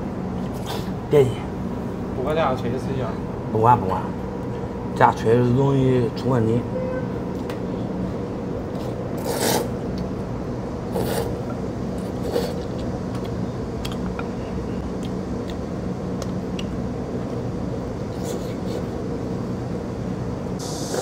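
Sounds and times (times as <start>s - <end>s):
person slurping noodles: 8.8s - 9.7s, 10.9s - 11.4s, 12.0s - 12.7s
eating noises and clicks: 12.0s - 17.4s.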